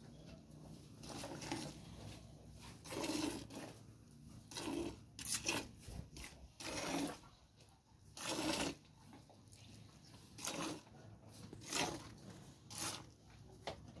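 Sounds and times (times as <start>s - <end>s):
milk squirting into bucket: 1.0s - 1.9s, 2.7s - 3.8s, 4.4s - 7.4s, 8.0s - 13.2s.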